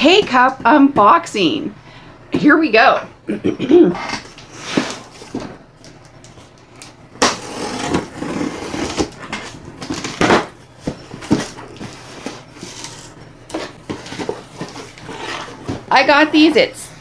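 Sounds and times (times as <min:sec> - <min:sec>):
cardboard rustling and scraping: 0:04.3 - 0:05.6, 0:07.2 - 0:16.5.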